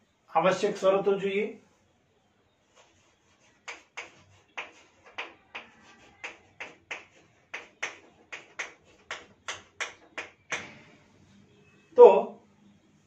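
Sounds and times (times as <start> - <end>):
chalk writing on chalkboard: 2.6 - 10.6.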